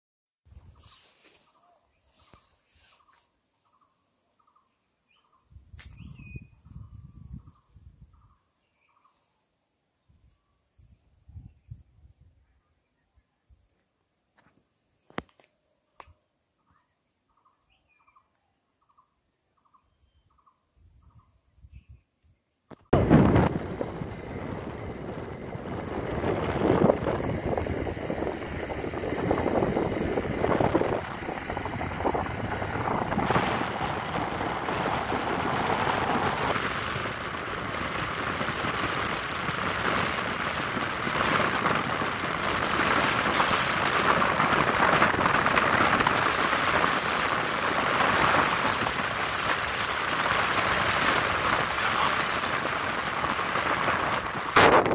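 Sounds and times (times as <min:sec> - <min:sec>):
wind on microphone: 0:05.5 - 0:08.4, 0:10.1 - 0:12.5, 0:22.9 - 0:54.9
vehicle road noise: 0:22.9 - 0:54.9.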